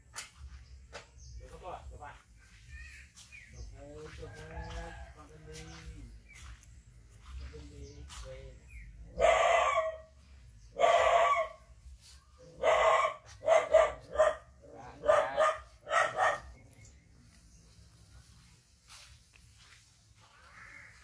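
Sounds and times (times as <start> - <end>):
chicken calling: 10.7 - 11.6.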